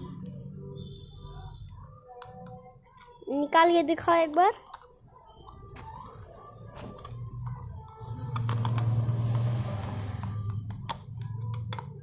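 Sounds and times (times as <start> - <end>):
plastic toy clicks and knocks: 4.2 - 5.6, 6.8 - 12.0.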